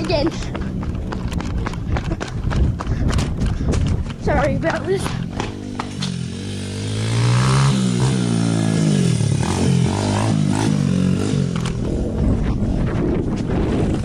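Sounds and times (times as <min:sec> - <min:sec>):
dirt bike engine revving: 0:05.1 - 0:12.3.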